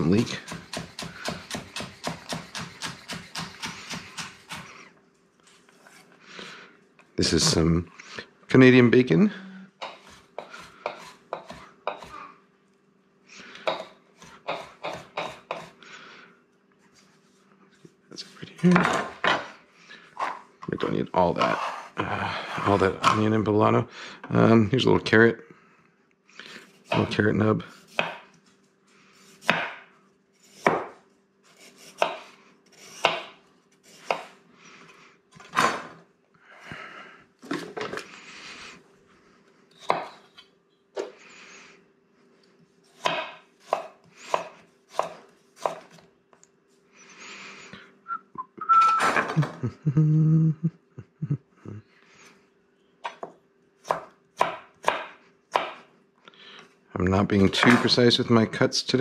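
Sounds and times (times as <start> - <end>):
knife chopping on wooden board: 0.2 - 4.6, 9.8 - 12.2, 13.6 - 15.8, 28.0 - 28.3, 29.4 - 29.8, 30.6 - 31.0, 31.7 - 32.3, 32.9 - 33.4, 34.0 - 34.4, 39.8 - 40.2, 43.0 - 46.0, 53.0 - 55.9.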